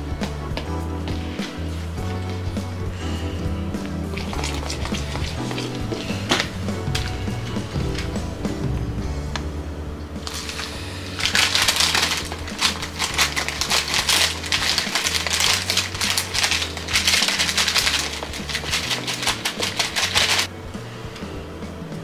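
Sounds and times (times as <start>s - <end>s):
background music: 0.0s - 22.0s
frozen berries rattling into bowl: 4.2s - 7.1s, 10.2s - 20.5s
plastic bag crinkling: 4.2s - 7.1s, 10.2s - 20.5s.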